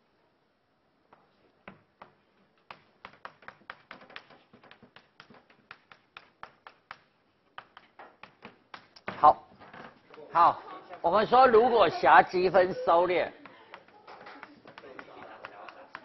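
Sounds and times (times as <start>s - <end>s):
chalk tapping on chalkboard: 1.7s - 9.2s, 13.4s - 16.0s.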